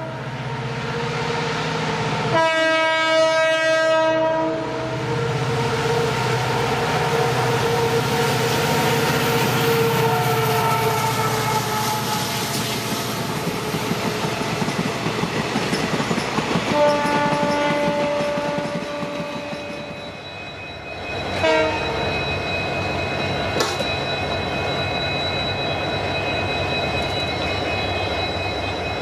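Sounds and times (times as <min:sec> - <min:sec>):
locomotive horn: 0:02.2 - 0:12.5, 0:16.7 - 0:19.9, 0:21.4 - 0:22.0
train wheels clattering on rails: 0:12.2 - 0:20.4, 0:23.2 - 0:25.0.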